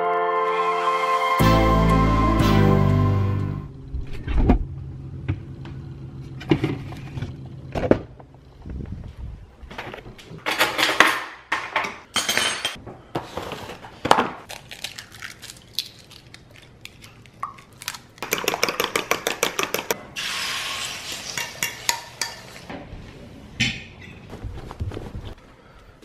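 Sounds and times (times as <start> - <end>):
fork beating eggs in bowl: 18.2 - 20.0
egg hissing in hot pan: 20.2 - 21.5.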